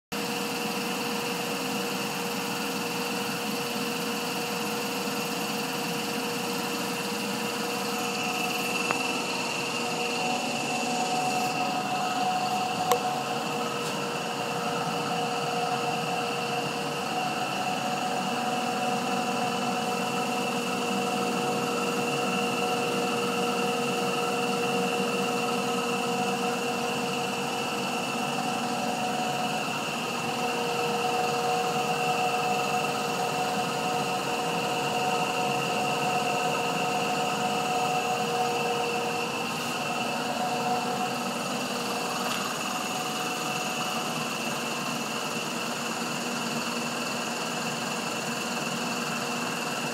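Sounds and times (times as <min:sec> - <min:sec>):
gas compressor humming: 0:00.2 - 0:49.9.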